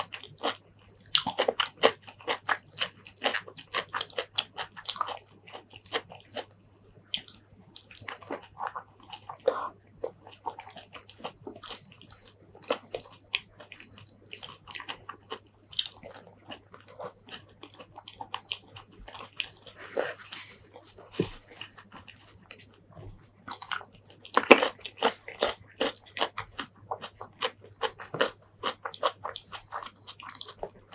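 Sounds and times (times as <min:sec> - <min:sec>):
faint low hum: 0:00.0 - 0:30.9
wet chewing and mouth smacks: 0:07.1 - 0:30.9.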